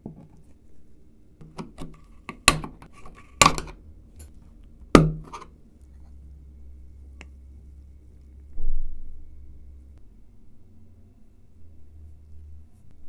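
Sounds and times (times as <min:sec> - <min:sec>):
screwdriver prying metal lid: 0:01.4 - 0:03.8, 0:05.0 - 0:05.5.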